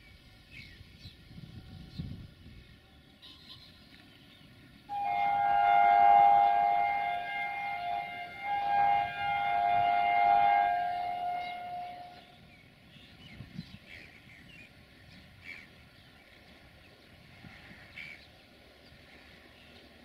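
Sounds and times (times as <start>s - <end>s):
locomotive air horn: 4.9s - 12.4s.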